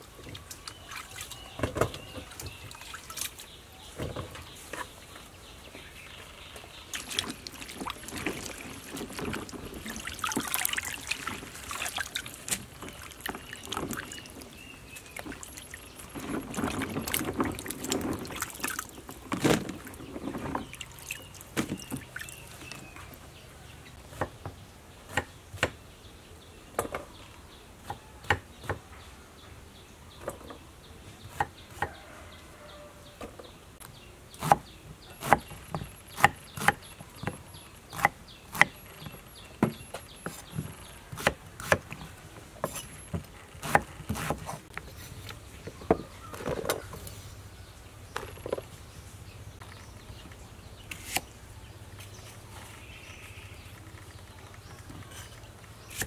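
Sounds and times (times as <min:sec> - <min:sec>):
water sloshing in basin: 0:00.2 - 0:03.5, 0:06.9 - 0:23.2.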